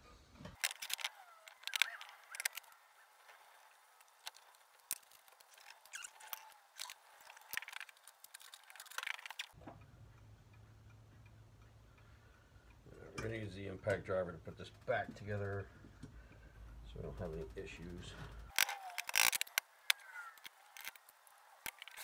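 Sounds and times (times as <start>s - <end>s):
metal parts clicking and knocking: 0.6s - 9.6s, 18.3s - 22.0s.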